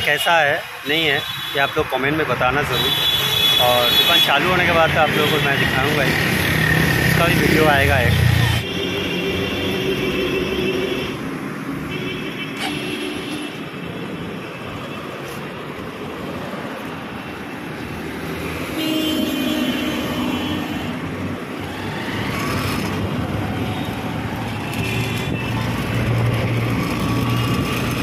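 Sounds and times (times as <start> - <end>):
vehicles passing: 0.0 - 28.0
wind noise: 21.2 - 28.0.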